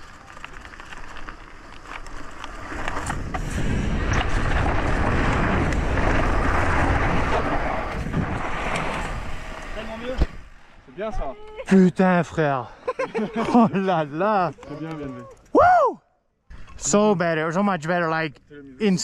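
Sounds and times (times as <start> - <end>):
bike clicks and rattles: 0.0 - 3.4, 14.3 - 15.6
bike tyres on loose dirt: 0.0 - 11.5
wind on microphone: 2.8 - 10.5.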